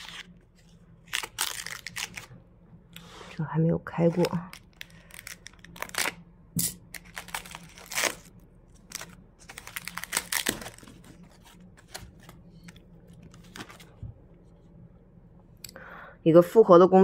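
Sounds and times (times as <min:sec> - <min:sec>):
foam sheet crinkling: 0:00.0 - 0:02.3, 0:04.1 - 0:06.2, 0:06.9 - 0:14.0.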